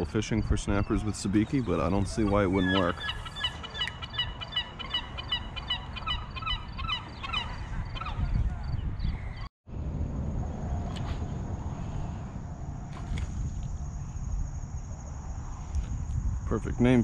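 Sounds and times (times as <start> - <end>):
low wind rumble: 0.0 - 17.0
birds honking: 1.4 - 8.3.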